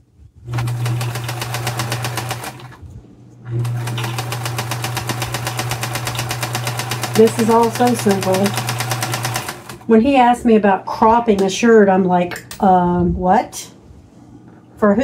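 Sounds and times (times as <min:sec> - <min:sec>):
sewing machine stitching: 0:00.5 - 0:02.8, 0:03.5 - 0:09.8.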